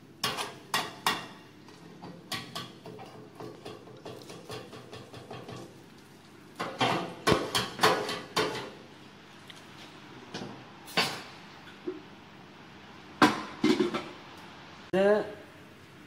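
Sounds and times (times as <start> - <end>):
metal pan and utensils clanking: 0.2 - 1.4, 2.0 - 5.7, 6.6 - 8.8.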